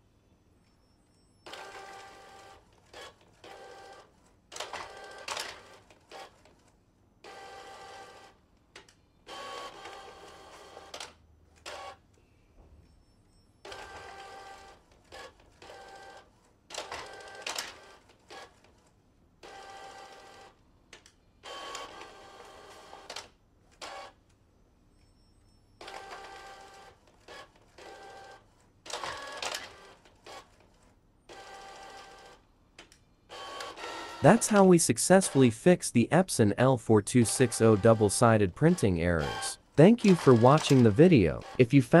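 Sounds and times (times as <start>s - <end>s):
inkjet printer motors whirring: 9.3s - 11.0s, 33.3s - 34.4s.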